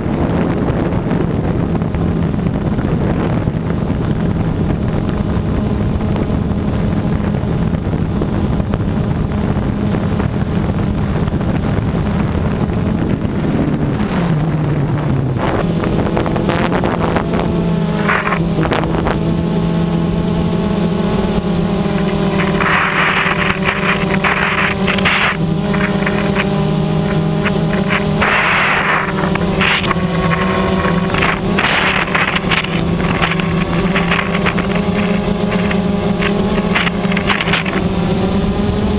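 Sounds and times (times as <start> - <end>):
drone propellers humming: 0.0 - 38.9
rushing wind: 0.0 - 38.9.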